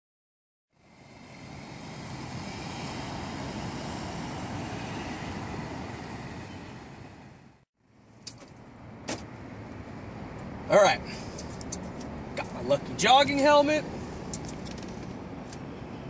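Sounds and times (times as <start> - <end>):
car driving slowly past: 0.7 - 13.0.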